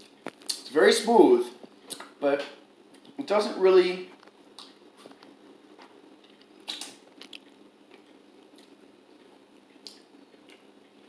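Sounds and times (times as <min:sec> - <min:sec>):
lip smacks and mouth clicks: 0:00.3 - 0:00.7, 0:01.9 - 0:02.2, 0:04.6 - 0:04.8, 0:06.2 - 0:10.7.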